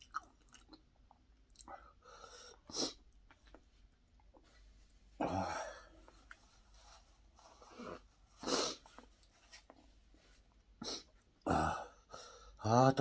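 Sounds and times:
man blowing nose: 2.7s - 3.0s, 7.6s - 9.0s, 10.8s - 11.1s.

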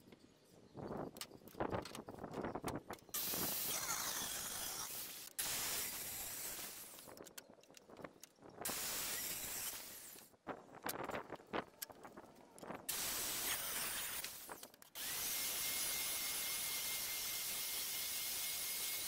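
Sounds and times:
circular saw cutting wood: 3.2s - 7.1s, 8.7s - 10.2s, 12.9s - 19.0s.

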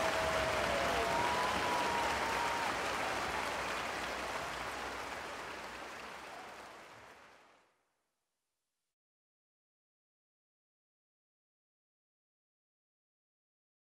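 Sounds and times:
crowd applauding: 0.0s - 7.7s.

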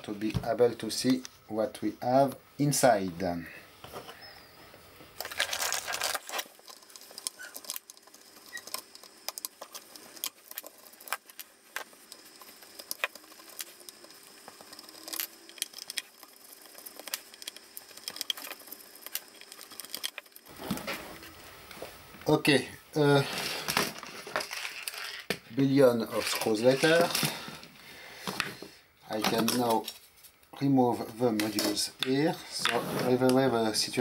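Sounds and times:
scraping rustle: 31.5s - 33.6s.

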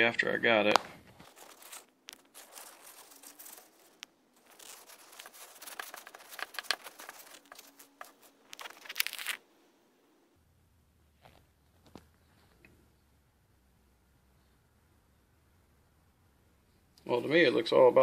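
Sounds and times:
paper towel crinkling and rustling: 1.1s - 9.4s.

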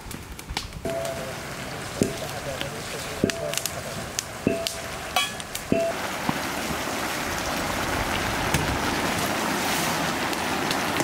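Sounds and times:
food sizzling in pan: 0.8s - 11.0s
steel plate knocking on pan: 4.5s - 6.0s.

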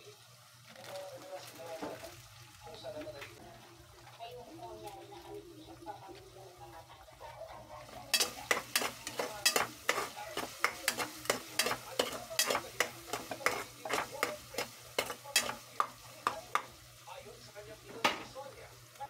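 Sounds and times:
meat frying in oil: 0.0s - 19.0s
metal spoon scraping a pot: 7.8s - 16.7s.

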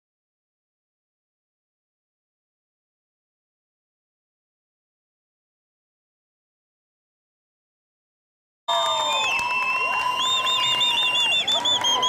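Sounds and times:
audience whistling: 8.7s - 12.0s
warbling whistle: 8.7s - 12.0s.

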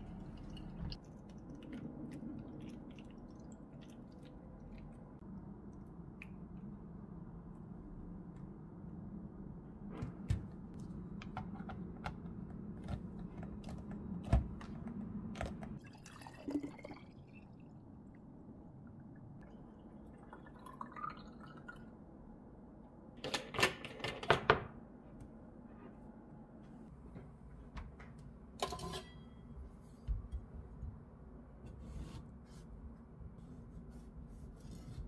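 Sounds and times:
low steady hum: 0.0s - 23.2s
juice pouring into glass bottle: 15.8s - 17.6s, 20.0s - 21.8s.

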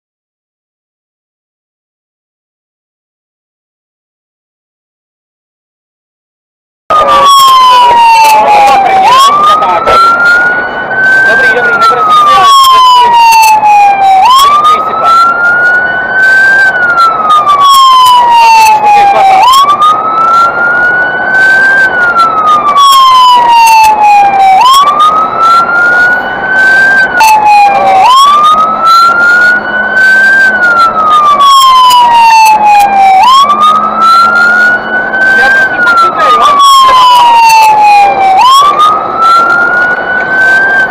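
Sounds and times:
fire engine siren wailing: 6.9s - 40.9s.

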